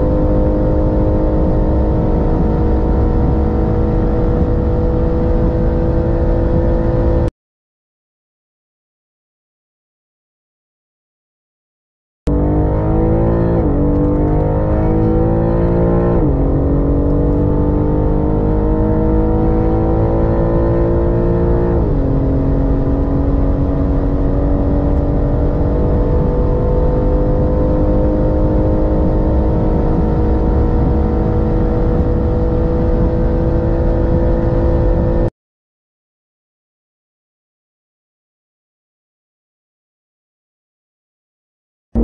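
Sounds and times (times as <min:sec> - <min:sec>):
car engine accelerating hard: 0:00.0 - 0:07.3, 0:12.3 - 0:35.3.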